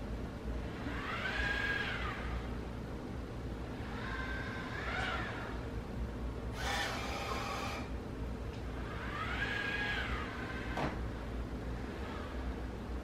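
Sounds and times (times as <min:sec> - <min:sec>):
robot mop motors whining: 0:06.5 - 0:07.9.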